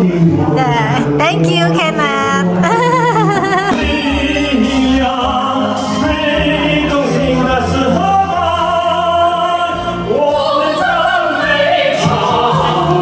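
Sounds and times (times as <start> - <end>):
person singing karaoke: 0.0 - 13.0.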